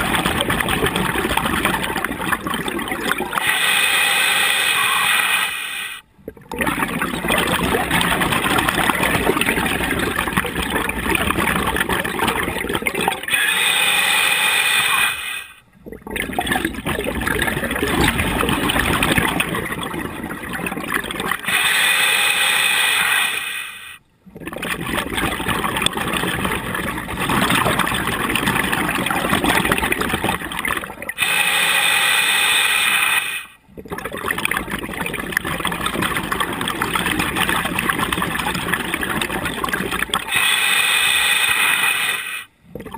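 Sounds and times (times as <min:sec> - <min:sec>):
exhaust bubbling underwater: 0:00.0 - 0:03.5, 0:06.1 - 0:13.4, 0:15.7 - 0:21.6, 0:24.2 - 0:31.2, 0:33.7 - 0:40.5, 0:42.6 - 0:42.9.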